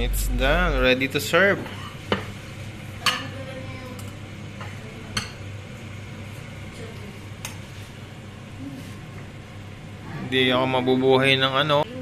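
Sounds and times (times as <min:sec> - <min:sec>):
steady low hum: 0:00.0 - 0:03.0.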